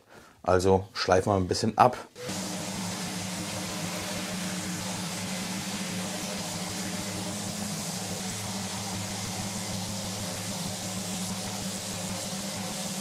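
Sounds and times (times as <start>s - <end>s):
electric sander sanding wood: 2.2s - 13.0s.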